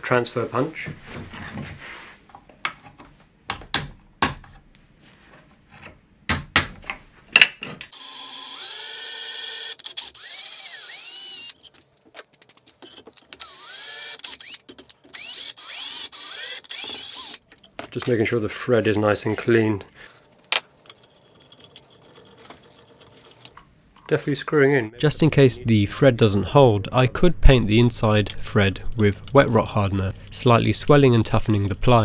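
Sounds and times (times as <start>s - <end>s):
cordless drill drilling wood: 8.0s - 11.6s, 13.4s - 17.4s.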